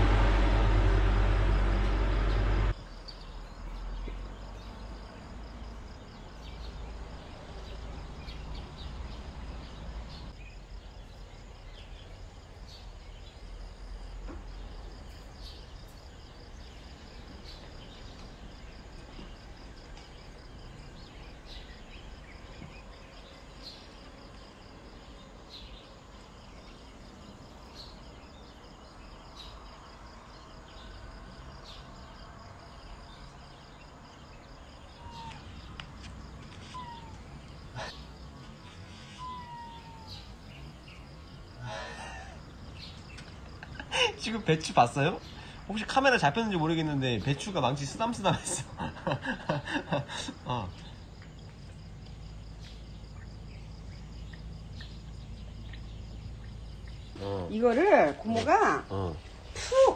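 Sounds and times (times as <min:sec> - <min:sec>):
loud steady noise: 0:00.0 - 0:02.8
faint high chirps: 0:36.6 - 0:43.0.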